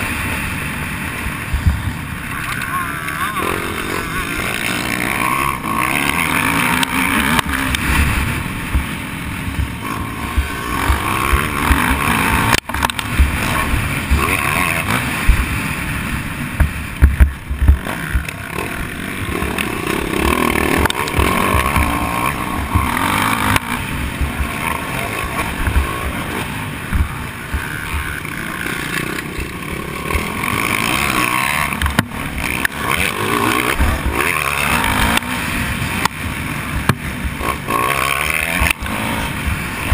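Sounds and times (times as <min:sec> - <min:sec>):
dirt bike engine revving: 0:00.0 - 0:39.9
wind buffeting microphone: 0:00.7 - 0:02.4, 0:15.2 - 0:29.2.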